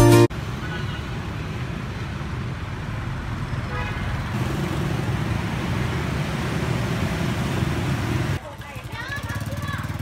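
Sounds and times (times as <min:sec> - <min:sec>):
scooter and motorbike traffic: 0:00.3 - 0:10.0.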